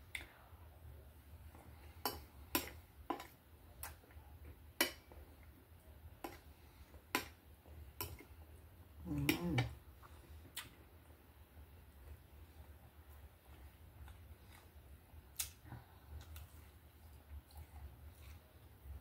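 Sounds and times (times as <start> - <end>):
person humming: 9.0 - 9.8
chewing: 13.1 - 19.0.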